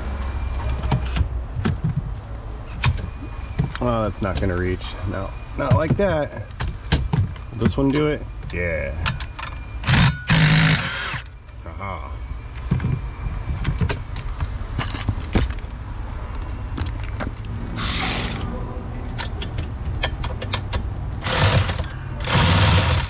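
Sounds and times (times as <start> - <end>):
cordless power tool running: 21.2 - 23.0.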